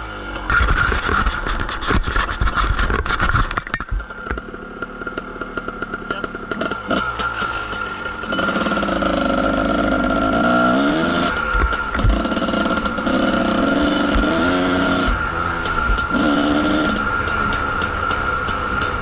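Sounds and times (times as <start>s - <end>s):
dirt bike engine accelerating: 0.0s - 19.0s
bike clattering over rough ground: 0.4s - 4.5s.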